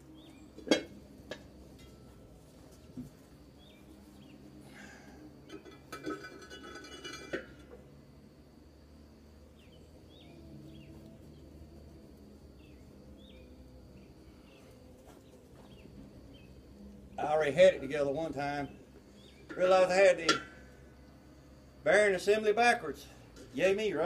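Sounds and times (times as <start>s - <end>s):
birds chirping: 0.0s - 5.7s, 9.4s - 21.5s.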